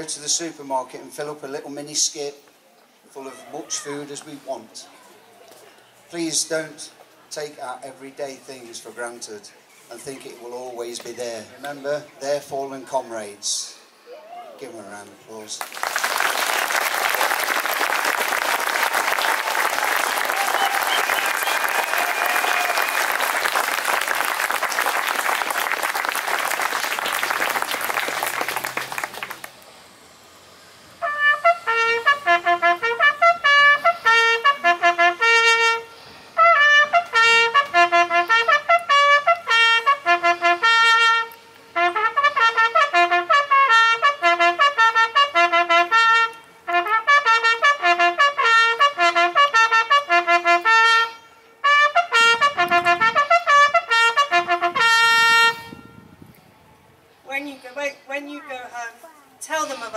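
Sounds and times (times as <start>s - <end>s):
crowd applause: 15.6s - 29.6s
bugle call on brass instrument: 16.1s - 29.5s, 31.0s - 56.2s.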